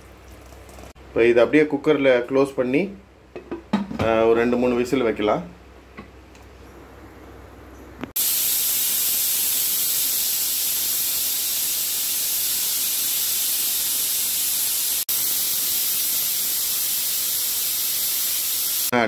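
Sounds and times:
pressure cooker steam hissing: 8.2 - 18.9.

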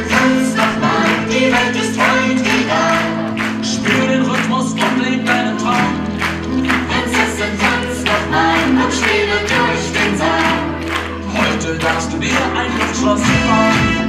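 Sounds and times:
several voices singing: 0.0 - 14.0.

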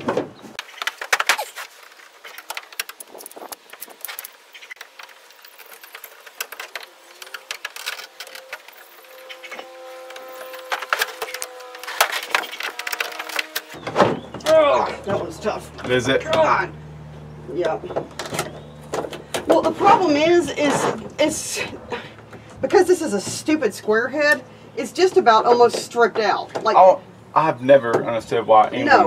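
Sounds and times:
steady multi-tone hum: 0.4 - 29.0
screwdriver clicking and scraping: 2.4 - 13.7.

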